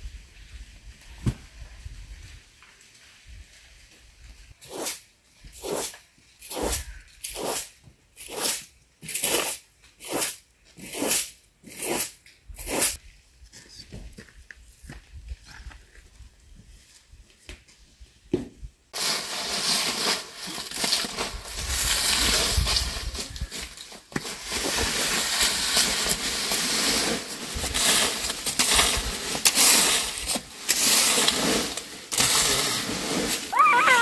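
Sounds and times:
dry leaves rustling and crunching: 19.0 - 34.0.

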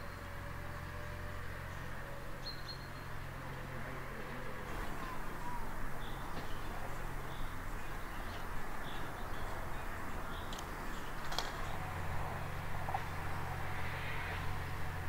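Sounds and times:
birds chirping: 4.6 - 13.7.

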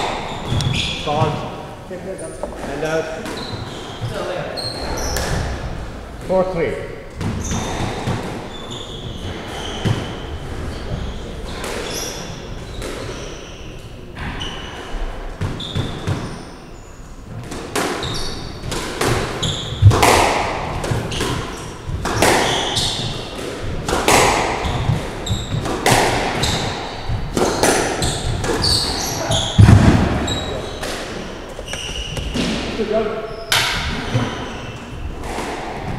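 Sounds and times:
shoes squeaking on wooden floor: 0.0 - 5.6, 7.4 - 13.8, 19.4 - 19.9, 24.6 - 25.7, 26.4 - 35.2
squash ball smacks: 18.7 - 32.7.

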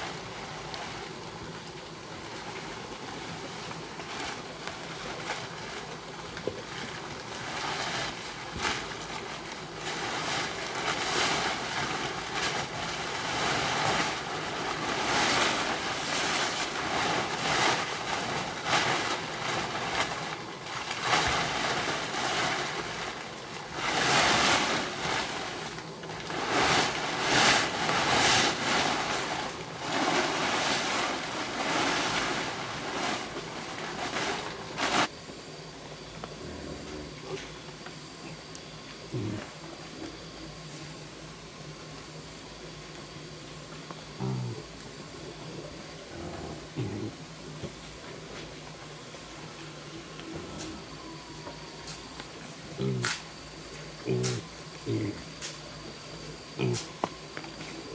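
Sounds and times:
plastic tarpaulin rustling: 0.0 - 35.1.

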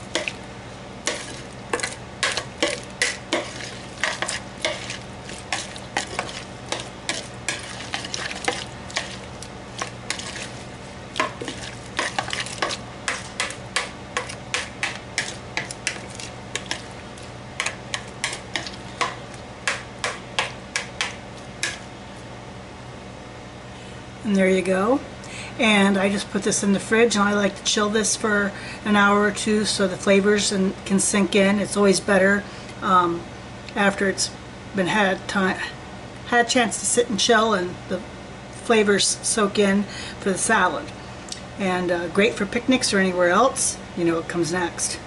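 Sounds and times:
wet slaps of tossed salad: 1.1 - 16.9, 17.6 - 21.9.

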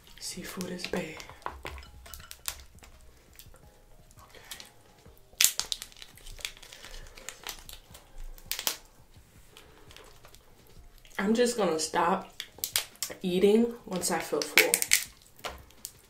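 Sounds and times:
shellfish shells cracking: 0.6 - 11.2, 12.2 - 13.2, 13.9 - 16.0.

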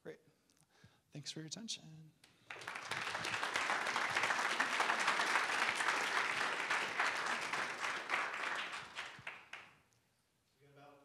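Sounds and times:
audience applauding: 2.5 - 9.8.

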